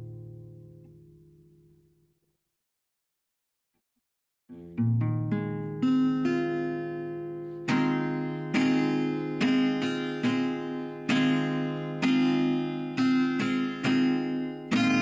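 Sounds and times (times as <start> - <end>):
acoustic guitar strumming chords: 4.6 - 15.0.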